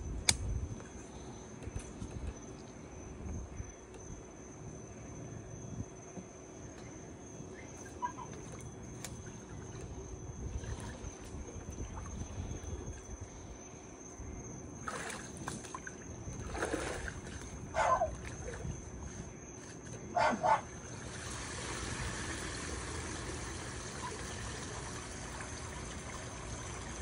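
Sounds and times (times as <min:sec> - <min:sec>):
water trickling and splashing: 0:14.8 - 0:19.9, 0:20.7 - 0:27.0.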